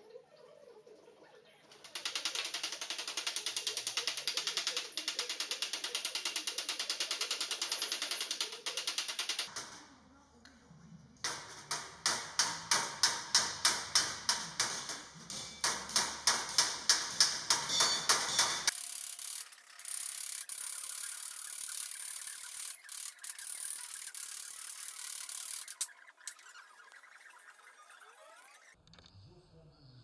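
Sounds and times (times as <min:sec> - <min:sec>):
hammer striking steel panel: 0:11.3 - 0:18.7.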